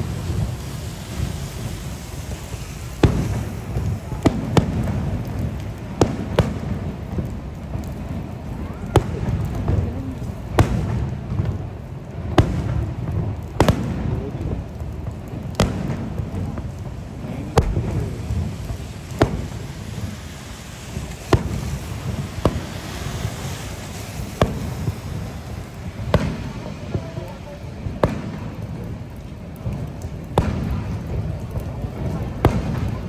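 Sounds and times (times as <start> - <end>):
fireworks bangs: 0.0 - 33.0
steady low rumble: 9.3 - 32.5.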